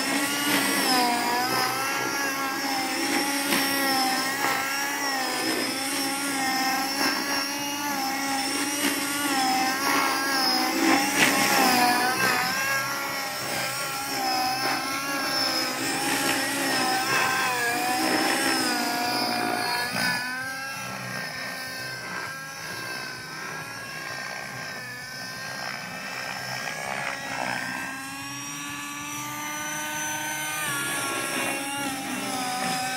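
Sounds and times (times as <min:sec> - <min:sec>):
model helicopter rotor whine: 0:00.0 - 0:32.9.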